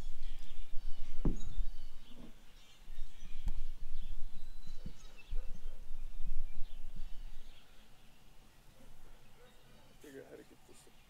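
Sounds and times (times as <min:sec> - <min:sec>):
wind rumbling on microphone: 0:00.0 - 0:07.9
small birds chirping: 0:00.0 - 0:11.0
low knocks: 0:01.1 - 0:01.7.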